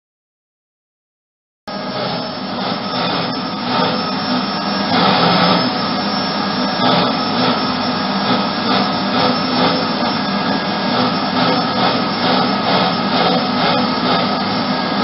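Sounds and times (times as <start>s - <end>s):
vacuum cleaner running: 1.7s - 15.0s.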